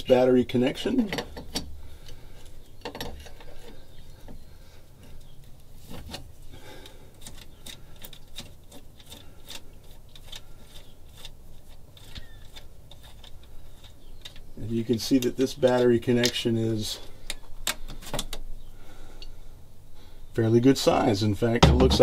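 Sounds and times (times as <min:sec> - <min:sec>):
metallic clicks and rubbing: 0:00.0 - 0:04.4, 0:05.0 - 0:06.5, 0:07.1 - 0:18.5.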